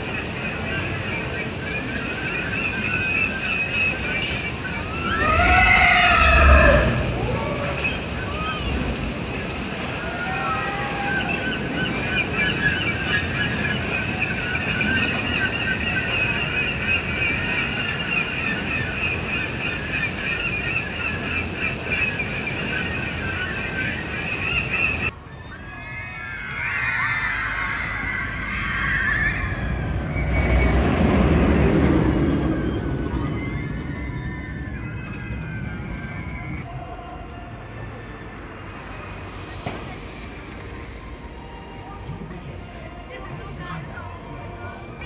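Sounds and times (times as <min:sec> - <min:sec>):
distant roller coaster rumbling: 0:00.0 - 0:45.0
riders screaming: 0:04.7 - 0:09.0, 0:09.9 - 0:16.2, 0:25.1 - 0:36.6.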